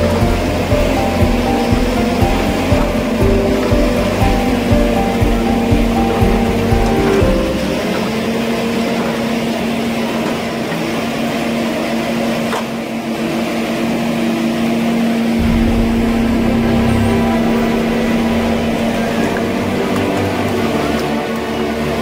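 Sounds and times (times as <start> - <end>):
diesel engine running: 15.4 - 20.8.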